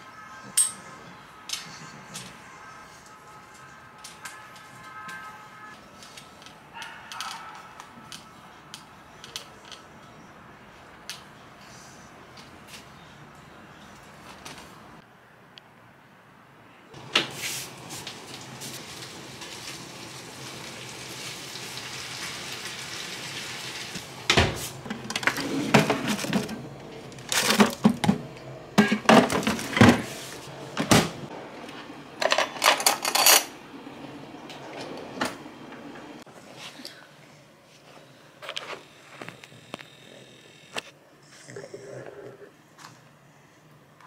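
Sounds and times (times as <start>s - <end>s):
plastic containers clattering: 24.9s - 30.2s.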